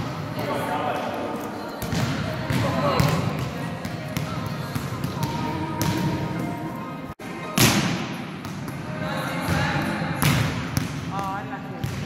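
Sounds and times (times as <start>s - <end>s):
volleyballs struck and bouncing: 1.8s - 6.6s, 7.4s - 12.0s.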